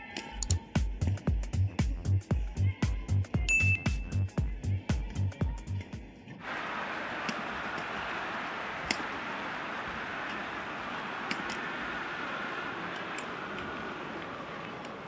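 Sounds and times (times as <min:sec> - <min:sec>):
arena crowd noise: 0:06.4 - 0:15.0.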